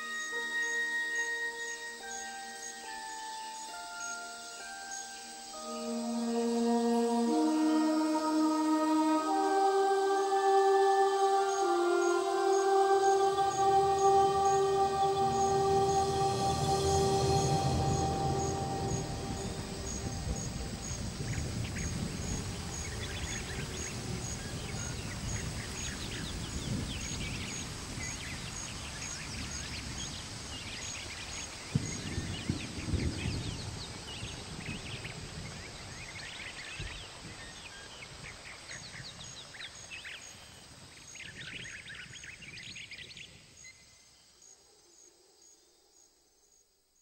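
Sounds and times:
birds chirping: 0:00.0 - 0:37.5
high rhythmic pulse: 0:05.6 - 0:21.7
low rumble: 0:13.8 - 0:25.8.

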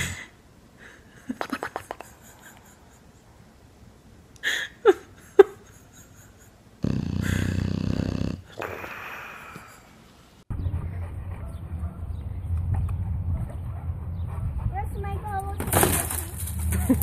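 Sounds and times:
dog snoring and wheezing: 0:06.8 - 0:09.7.

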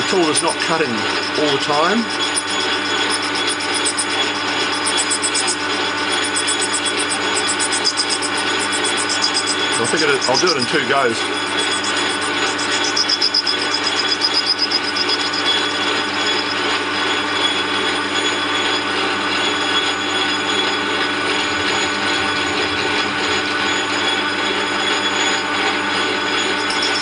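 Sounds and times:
lathe tool cutting plastic: 0:00.0 - 0:27.0
metal lathe gear whine: 0:00.0 - 0:27.0.

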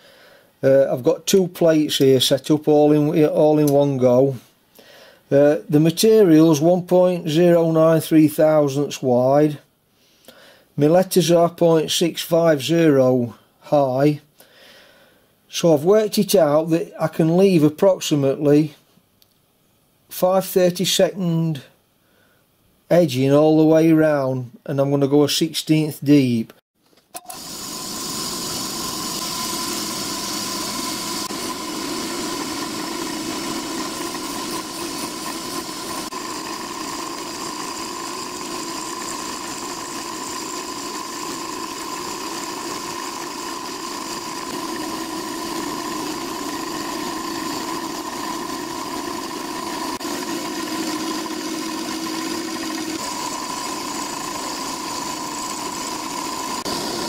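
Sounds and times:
milling machine cutting metal: 0:27.2 - 0:57.0.

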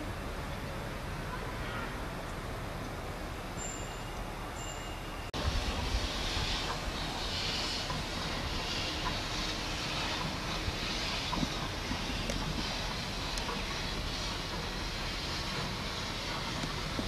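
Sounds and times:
steam hiss and rumble: 0:00.0 - 0:17.0
steam locomotive exhaust beats: 0:03.4 - 0:17.0.

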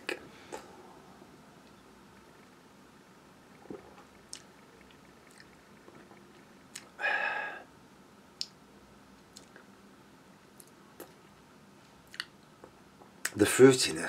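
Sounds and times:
lip smacks: 0:03.6 - 0:07.0, 0:08.4 - 0:08.6, 0:09.3 - 0:09.7, 0:12.1 - 0:12.4
man exhaling: 0:07.0 - 0:07.7
tongue clicks: 0:12.1 - 0:12.4.

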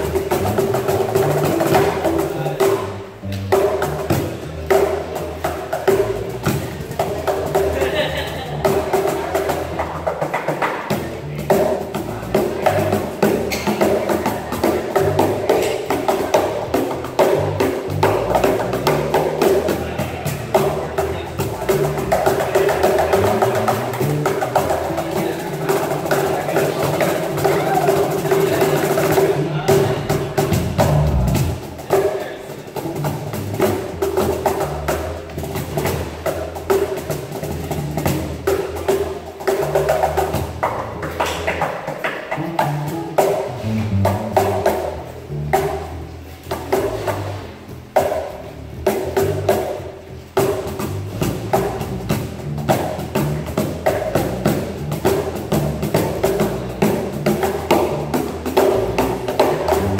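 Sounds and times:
electric bass guitar: 0:00.0 - 0:32.0, 0:32.8 - 0:59.9
cajons played by hand: 0:00.0 - 0:59.9.

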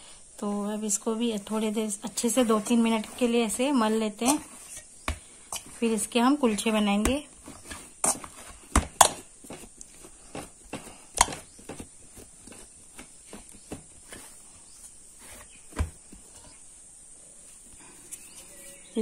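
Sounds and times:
dough kneaded in steel bowl: 0:00.4 - 0:16.8
dough knocking against bowl: 0:08.0 - 0:09.7, 0:10.3 - 0:13.1.

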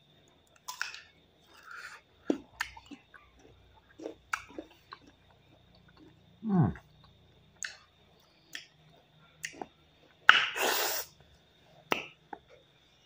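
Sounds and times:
people chewing mango: 0:00.4 - 0:10.3.

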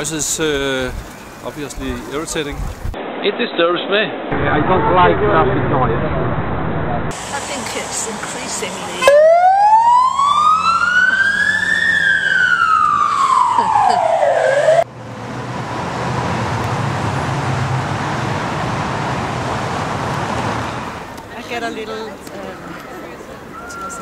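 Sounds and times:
dense road traffic rumble: 0:00.0 - 0:03.2, 0:04.5 - 0:24.0
emergency vehicle siren wailing: 0:09.0 - 0:14.9.

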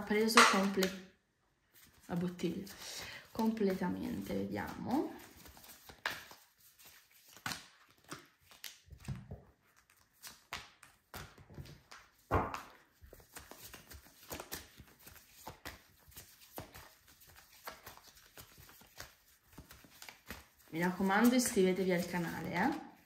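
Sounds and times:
cards being shuffled: 0:00.2 - 0:01.0, 0:01.8 - 0:22.5.

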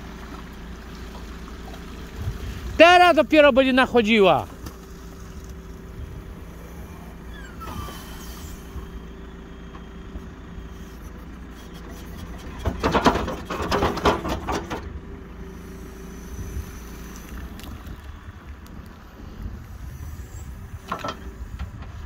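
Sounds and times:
diesel engine running: 0:00.0 - 0:22.0
bucket clanking and scraping: 0:11.7 - 0:15.0.

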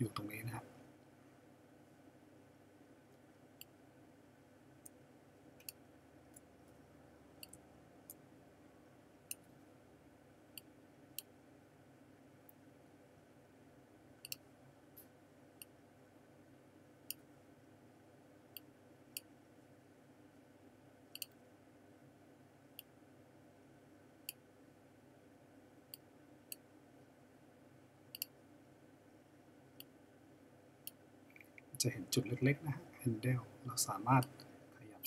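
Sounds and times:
faint room hum: 0:00.0 - 0:35.0
computer mouse clicking: 0:05.6 - 0:06.5, 0:14.2 - 0:14.4, 0:21.1 - 0:21.4, 0:28.1 - 0:28.3.

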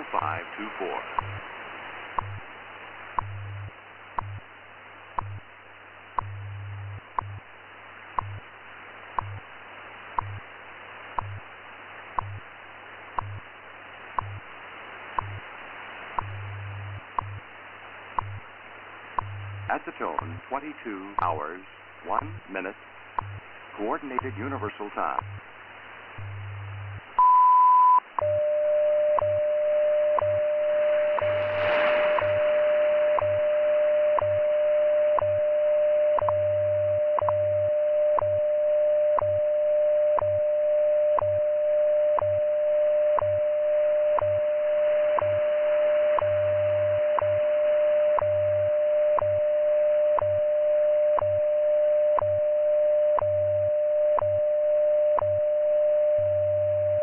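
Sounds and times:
burst of static: 0:00.0 - 0:27.2, 0:30.2 - 0:35.4
steady tone with ticks: 0:02.1 - 0:02.5, 0:03.1 - 0:04.5, 0:05.1 - 0:05.5, 0:06.1 - 0:07.5, 0:08.1 - 0:08.5, 0:09.1 - 0:09.5, 0:10.1 - 0:10.5, 0:11.1 - 0:11.5, 0:12.1 - 0:13.5, 0:14.1 - 0:15.5, 0:16.1 - 0:17.5, 0:18.1 - 0:18.5, 0:19.1 - 0:25.5, 0:30.1 - 0:35.5, 0:36.1 - 0:37.5, 0:41.1 - 0:41.5, 0:44.1 - 0:49.5, 0:50.1 - 0:50.5, 0:52.1 - 0:52.4
radio beep: 0:19.3 - 0:25.4, 0:26.2 - 0:57.0
shortwave hiss: 0:30.6 - 0:34.2.

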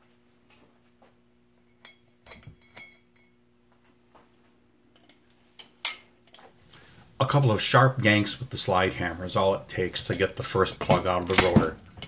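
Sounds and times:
faint steady hum: 0:00.0 - 0:12.0
hand tools clinking on metal: 0:01.8 - 0:03.3, 0:05.0 - 0:06.5, 0:10.0 - 0:12.0.

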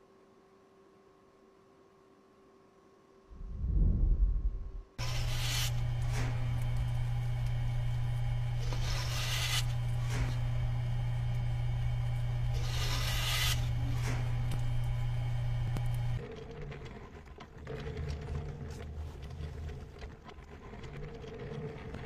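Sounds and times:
steady low hum: 0:02.8 - 0:16.7
loud low rumble: 0:03.3 - 0:05.0.

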